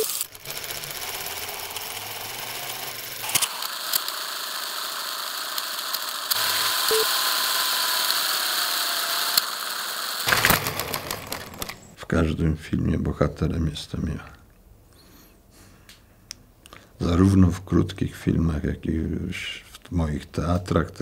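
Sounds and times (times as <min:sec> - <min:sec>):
film projector whirring: 0:00.0 - 0:12.0.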